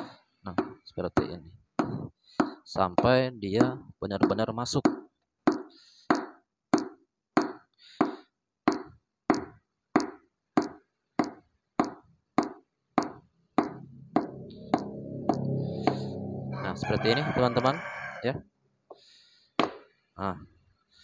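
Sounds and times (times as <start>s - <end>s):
hammer knocking on wooden block: 0.0s - 16.1s, 19.6s - 19.9s.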